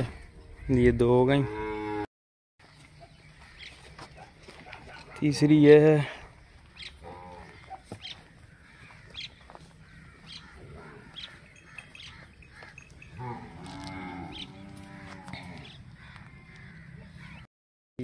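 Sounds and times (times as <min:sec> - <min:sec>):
water buffalo mooing: 0:10.5 - 0:15.8.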